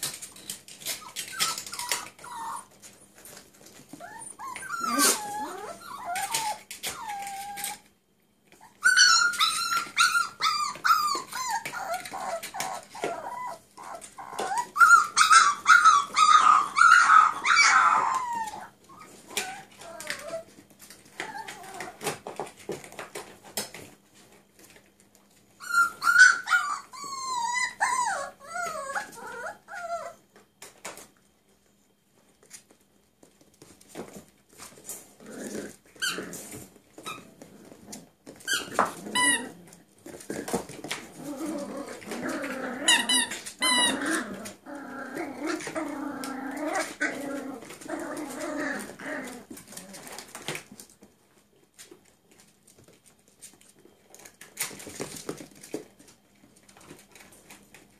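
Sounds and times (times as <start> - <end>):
puppies growling: 0.0 - 7.9, 8.5 - 22.5, 25.6 - 30.2, 34.6 - 51.0
puppies whining: 0.0 - 22.5, 25.6 - 30.4, 34.6 - 50.8
puppies yelping: 0.8 - 2.8, 3.9 - 7.8, 8.6 - 20.4, 25.6 - 30.2, 38.4 - 39.6, 41.1 - 50.0.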